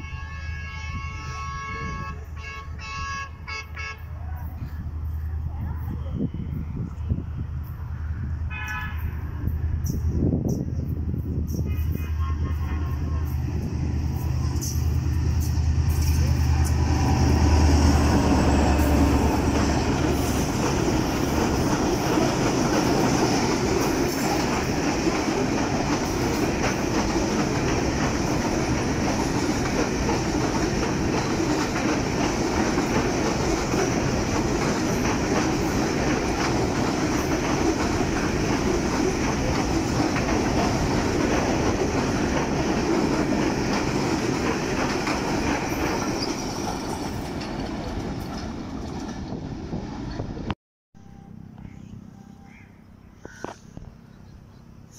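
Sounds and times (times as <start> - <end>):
diesel locomotive engine drone: 0.0 - 54.9
wagon wheels clattering on rails: 19.5 - 49.4.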